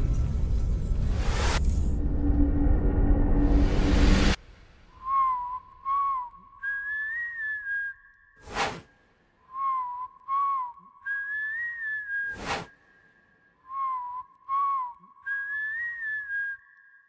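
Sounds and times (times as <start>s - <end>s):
whistled tune: 4.9s - 8.4s, 9.4s - 17.0s.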